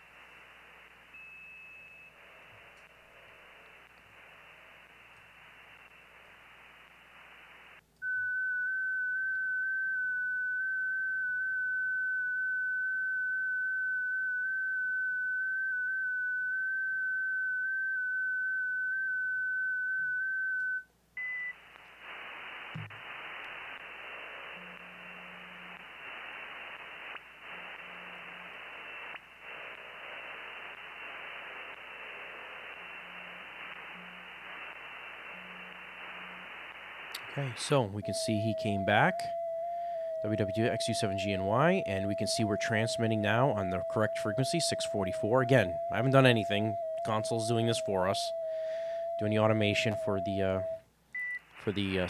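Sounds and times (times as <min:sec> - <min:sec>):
radio hiss: 0:00.0 - 0:07.9, 0:21.5 - 0:52.0
steady high radio tone: 0:00.0 - 0:50.8, 0:51.4 - 0:52.0.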